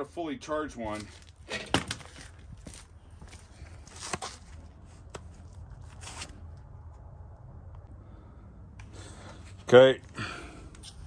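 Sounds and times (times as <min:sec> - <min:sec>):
low steady rumble: 0:02.2 - 0:11.0.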